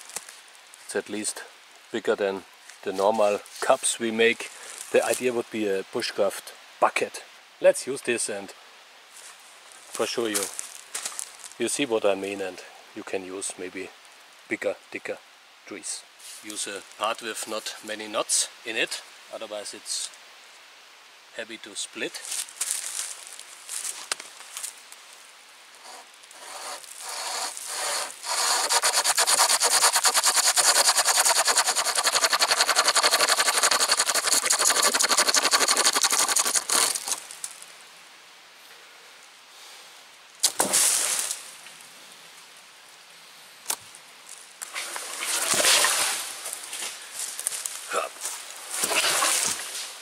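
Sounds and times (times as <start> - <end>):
leaves rustling: 0.0 - 6.6, 8.0 - 14.6, 15.9 - 50.0
hand saw cutting a log: 25.8 - 37.2, 48.8 - 49.5.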